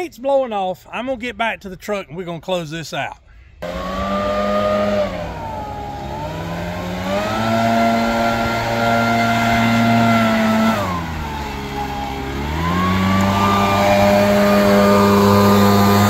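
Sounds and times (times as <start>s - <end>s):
leaf blower running: 3.6s - 16.0s.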